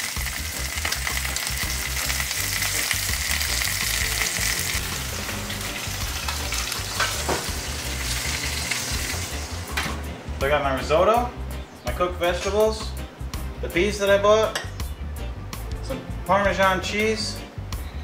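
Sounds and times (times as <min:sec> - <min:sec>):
chicken sizzling in frying pan: 0:00.0 - 0:09.9
pan knocking on oven rack: 0:06.9 - 0:07.7.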